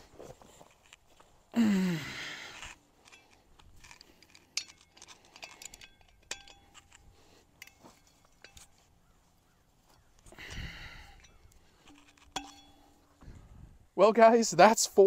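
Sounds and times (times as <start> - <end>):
metal hardware clinking: 2.6 - 13.2.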